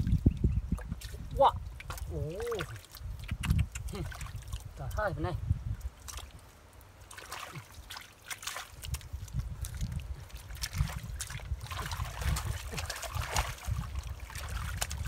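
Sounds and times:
muddy water splashing: 0.0 - 15.0
hands slapping wet mud: 1.8 - 4.6, 5.9 - 6.4, 7.0 - 15.0.

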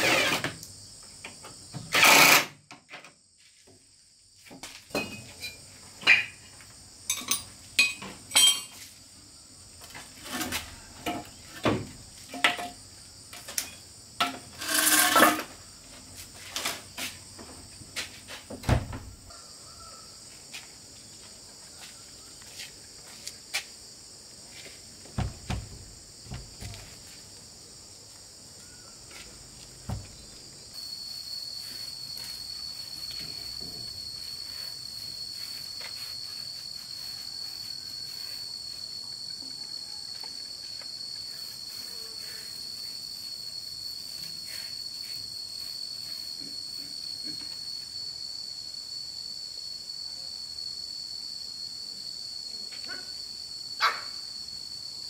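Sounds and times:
insects buzzing: 0.0 - 55.0
knocks on wooden door: 25.2 - 26.8.

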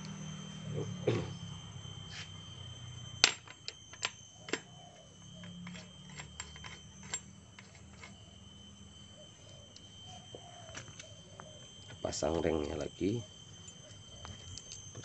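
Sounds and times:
metallic clicks of engine parts: 3.2 - 4.8, 13.6 - 15.0.

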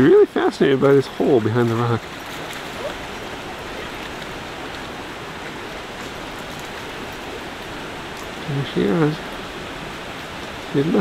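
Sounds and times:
creek rushing over rocks: 0.0 - 11.0.

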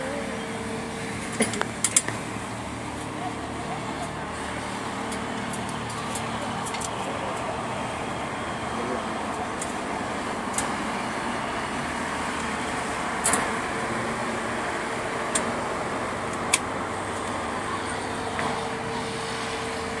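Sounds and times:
steady background noise: 0.0 - 20.0.

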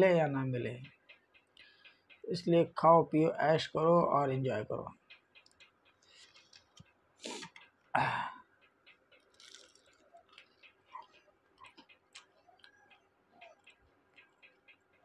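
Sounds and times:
sharp breath: 7.2 - 7.5
wet mouth clicks: 9.2 - 12.7
chewing crunchy food: 9.2 - 14.5.

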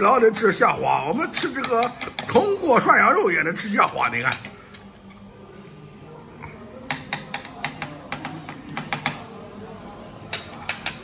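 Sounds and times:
utensils clicking against dishes: 1.2 - 2.6, 3.9 - 5.3, 6.8 - 9.3, 10.2 - 11.0.

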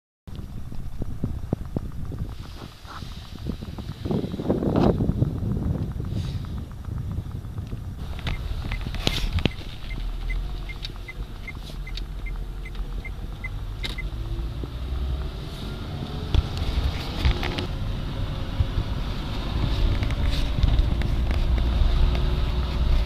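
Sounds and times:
light ticking: 0.3 - 15.4
car engine and road rumble: 0.3 - 23.0.

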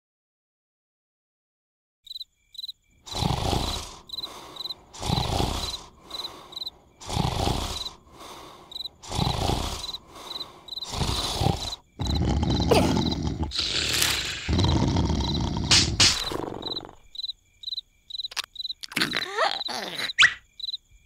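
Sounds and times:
crickets chirping: 2.1 - 21.0
cartoon snoring: 3.1 - 17.1, 18.8 - 20.4.

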